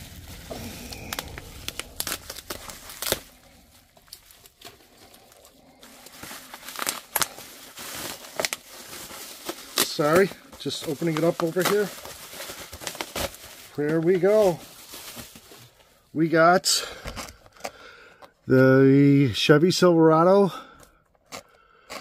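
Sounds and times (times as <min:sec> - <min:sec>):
tape tearing: 0:00.0 - 0:04.9, 0:06.0 - 0:14.0
bubble wrap crinkling: 0:00.0 - 0:18.4.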